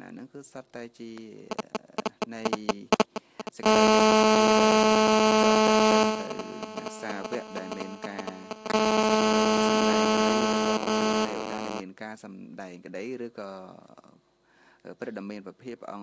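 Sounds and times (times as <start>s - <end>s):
loud steady buzzing tone: 1.2s - 11.8s.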